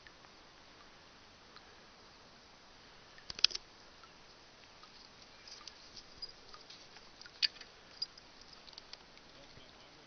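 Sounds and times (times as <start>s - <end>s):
light rustles: 4.3s - 9.6s.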